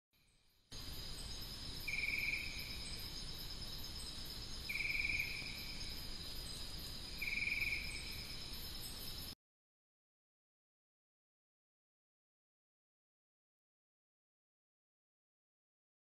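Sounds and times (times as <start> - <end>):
insect chorus shrill: 0.2 - 9.4
pulsed insect trill: 0.2 - 9.4.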